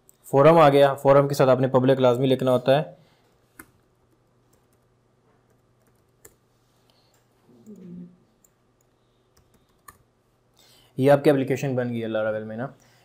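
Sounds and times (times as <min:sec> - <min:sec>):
low murmured voice: 0:07.5 - 0:08.3
computer keyboard clicks: 0:08.4 - 0:10.0.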